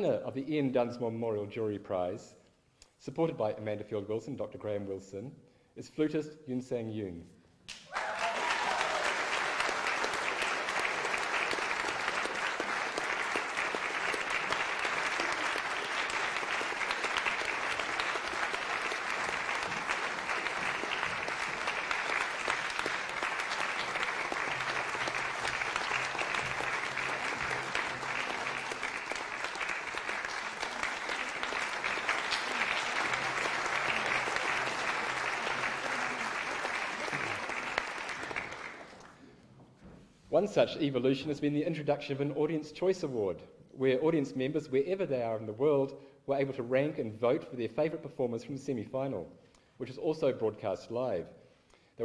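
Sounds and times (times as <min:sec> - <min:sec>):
audience applauding: 0:07.7 - 0:39.2.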